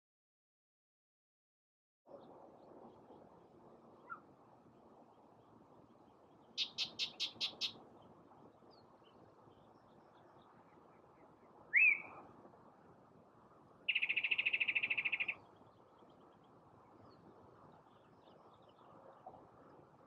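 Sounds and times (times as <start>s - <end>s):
loud upslurred bird whistle: 6.6s - 7.7s, 11.7s - 12.1s, 13.9s - 15.4s
bird singing sharp notes: 6.6s - 7.8s, 11.7s - 12.1s, 13.9s - 15.4s.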